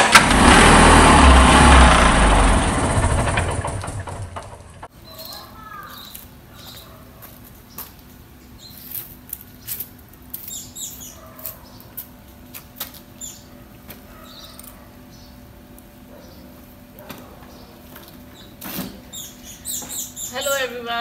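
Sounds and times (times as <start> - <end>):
sparrows chirping: 4.9 - 12.2, 13.1 - 21.0.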